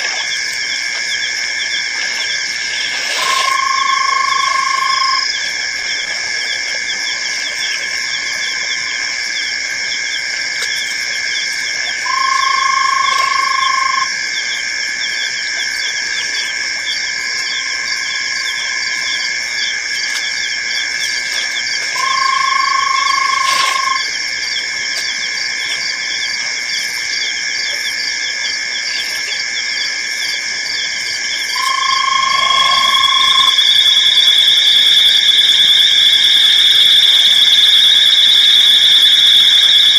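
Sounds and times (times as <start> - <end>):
frogs and insects trilling: 0.0 - 39.9
mid-pitched animal call: 2.2 - 9.0, 12.0 - 14.2, 22.0 - 24.6, 31.5 - 34.2.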